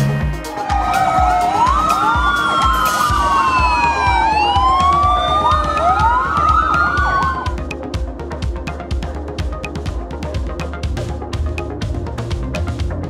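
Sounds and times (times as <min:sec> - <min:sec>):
background music drum beat: 0:00.0 - 0:13.0
fire engine sirens wailing: 0:00.4 - 0:07.8
yelping siren: 0:00.4 - 0:07.8.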